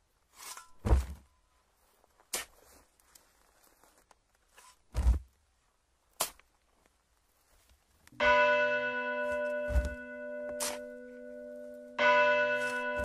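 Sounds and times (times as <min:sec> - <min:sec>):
spade striking earth: 0:00.3 - 0:01.3, 0:02.2 - 0:02.8, 0:04.6 - 0:05.3, 0:06.1 - 0:06.6, 0:09.3 - 0:11.0
church bell ringing: 0:08.2 - 0:13.0.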